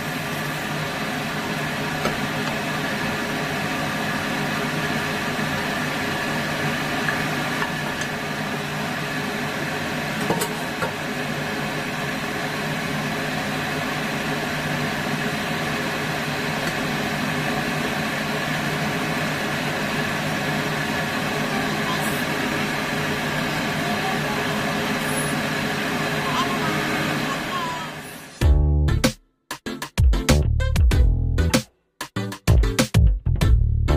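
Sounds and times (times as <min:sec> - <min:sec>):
kitchen fan whirring hum: 0:00.0 - 0:28.4.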